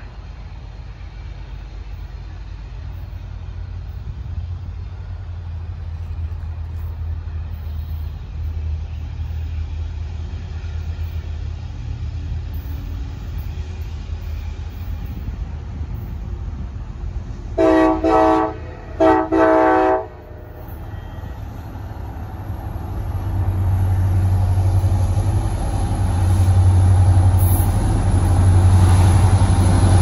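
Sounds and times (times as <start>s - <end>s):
freight train diesel rumble: 0.0s - 30.0s.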